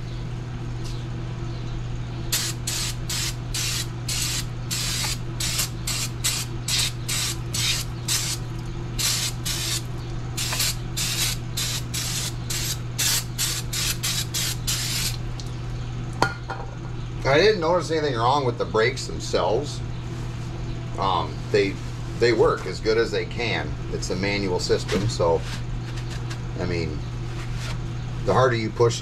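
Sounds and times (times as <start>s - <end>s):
aerosol spray hissing bursts: 2.3s - 8.4s, 9.0s - 15.2s.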